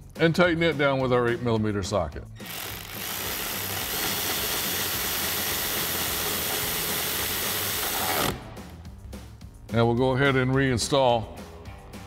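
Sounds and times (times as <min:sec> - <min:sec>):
ratchet wrench ratcheting: 0:02.4 - 0:08.4.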